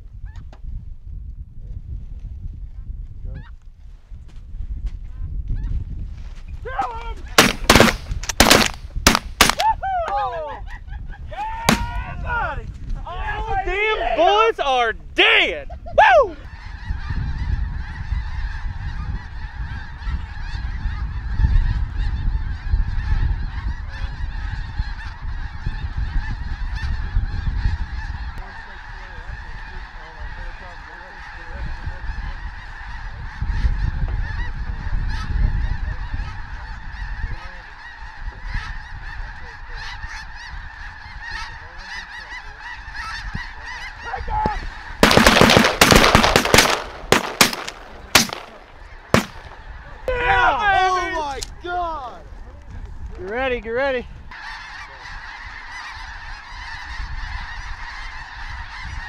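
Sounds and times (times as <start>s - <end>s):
loud sharp bangs: 7.4s - 9.6s, 11.6s - 12.0s, 44.4s - 49.6s
flock of geese honking: 16.4s - 59.0s.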